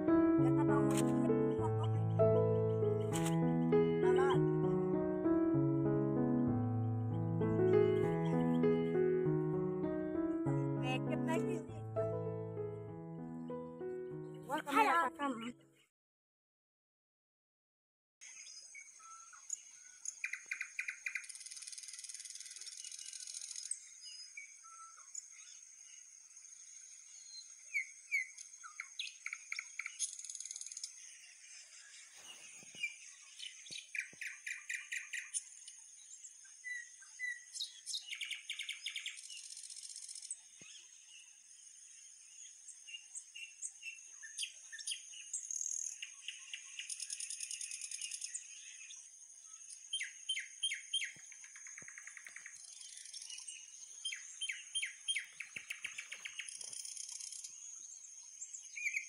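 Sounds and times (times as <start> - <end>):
birds singing: 7.0 - 12.4, 18.2 - 41.4, 42.1 - 59.0.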